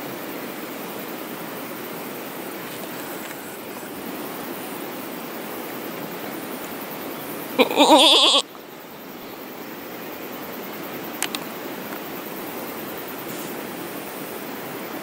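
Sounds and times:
goat bleating: 7.6s - 8.4s.

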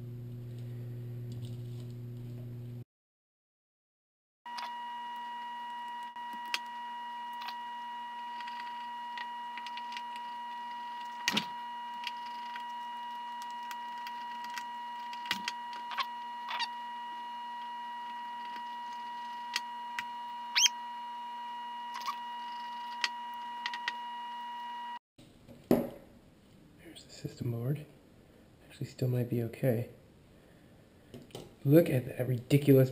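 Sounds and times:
steady high whine: 4.5s - 25.0s.

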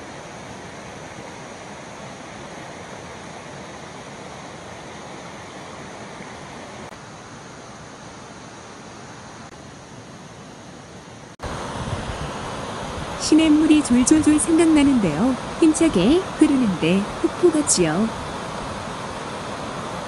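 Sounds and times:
small cascading waterfall: 0.0s - 20.0s
stream rushing over rocks: 11.1s - 20.0s.

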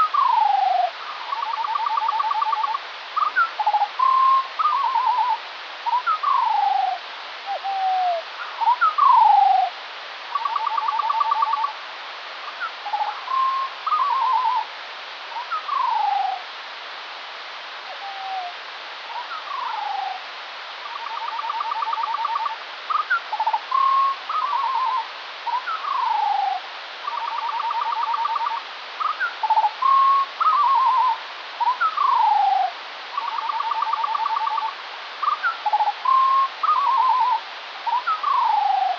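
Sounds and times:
steady hiss: 0.0s - 38.9s
slowed bird song: 20.8s - 38.9s.

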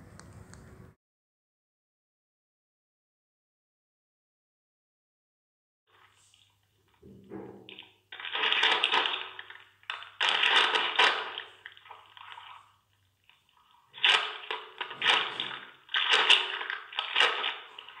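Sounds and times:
crackling rustling noise: 7.7s - 18.0s.

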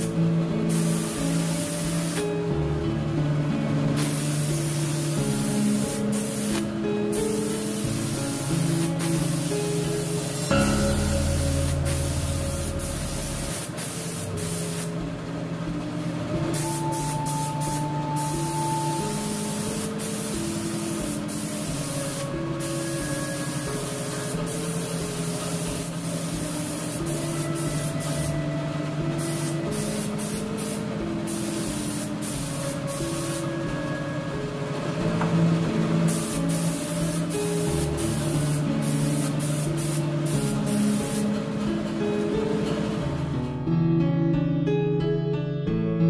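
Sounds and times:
spray gun hissing: 0.0s - 2.4s, 4.0s - 15.0s, 16.5s - 28.4s, 29.2s - 33.6s, 36.0s - 41.5s.

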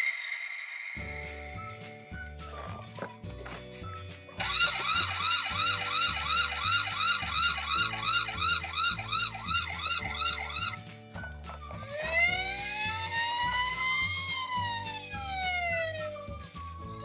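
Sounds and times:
toy electronic siren wailing: 4.4s - 10.8s, 11.7s - 16.5s.

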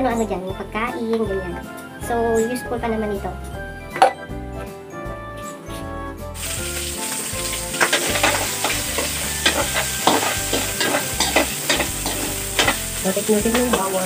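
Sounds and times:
garlic sizzling in hot oil: 6.4s - 14.0s
metal ladle scraping wok: 7.5s - 14.0s.

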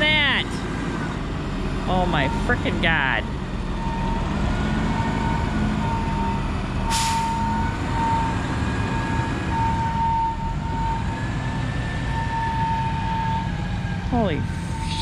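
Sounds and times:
diesel engine rumble: 0.0s - 15.0s.

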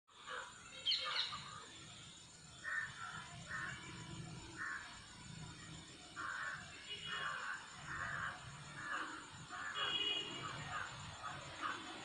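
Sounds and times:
faint low background noise: 0.1s - 12.0s
crow cawing: 2.6s - 3.8s, 4.4s - 5.0s, 6.2s - 10.2s.

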